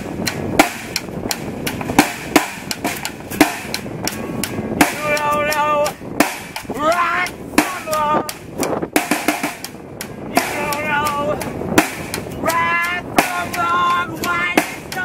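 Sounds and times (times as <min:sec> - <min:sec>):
drums beating: 0:00.0 - 0:15.0
person singing: 0:04.8 - 0:06.0, 0:06.7 - 0:08.4, 0:10.3 - 0:11.5, 0:12.4 - 0:15.0.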